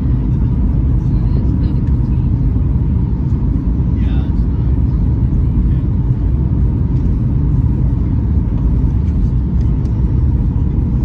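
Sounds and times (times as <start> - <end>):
aircraft cabin rumble: 0.0 - 11.0.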